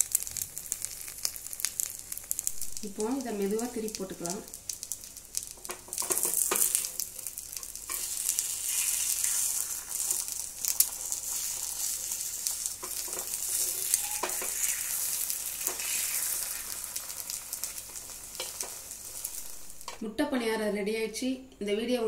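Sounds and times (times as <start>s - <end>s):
food sizzling in oil: 0.0s - 20.0s
metal utensil scraping a pan: 12.8s - 15.0s.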